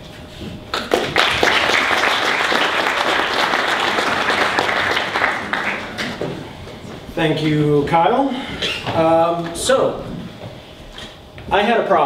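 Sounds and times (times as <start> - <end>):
audience applauding: 0.8 - 6.4.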